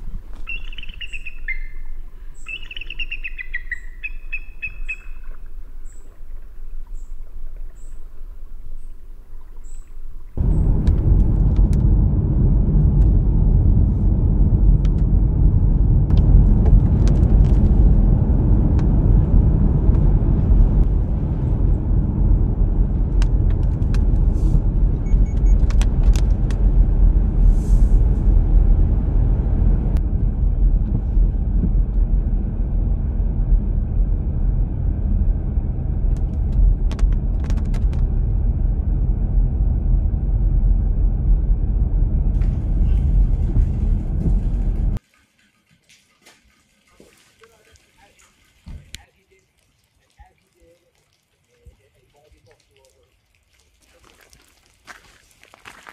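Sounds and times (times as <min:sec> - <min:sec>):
car road rumble on wet pavement: 0:10.4 - 0:45.0.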